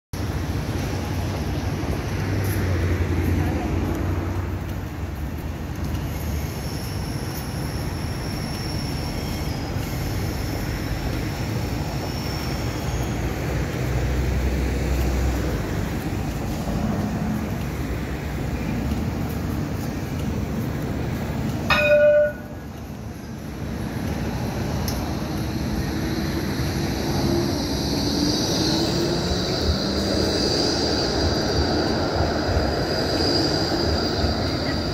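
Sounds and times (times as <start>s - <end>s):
street noise: 0.1s - 34.9s
tram humming: 0.2s - 34.9s
loud ringing tone: 21.7s - 22.6s.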